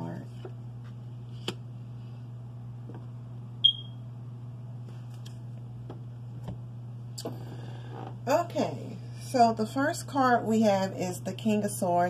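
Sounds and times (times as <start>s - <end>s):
steady low hum: 0.0s - 12.0s
smoke alarm chirp: 3.6s - 4.0s.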